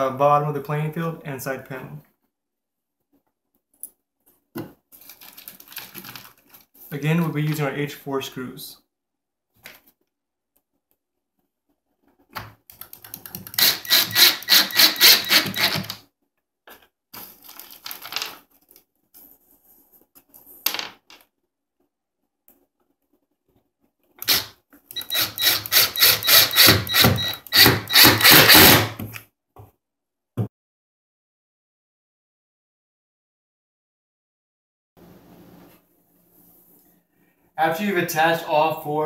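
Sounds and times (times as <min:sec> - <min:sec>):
screw bag rustling: 0:05.0 - 0:06.7
cordless drill driving screws: 0:13.5 - 0:16.0, 0:24.2 - 0:29.0.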